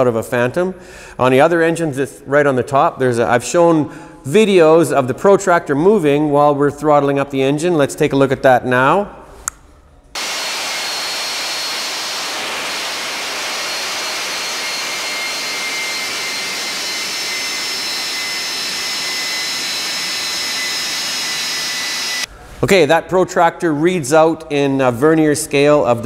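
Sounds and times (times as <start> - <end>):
turbojet engine running: 10.2 - 22.3
high compressor whine: 10.2 - 22.4.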